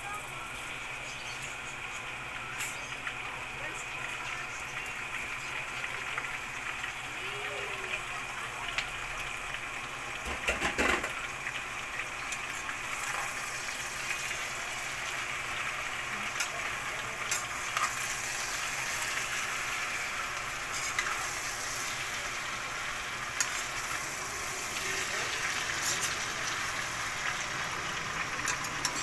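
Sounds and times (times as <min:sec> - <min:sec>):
food sizzling in a pan: 0:00.0 - 0:29.0.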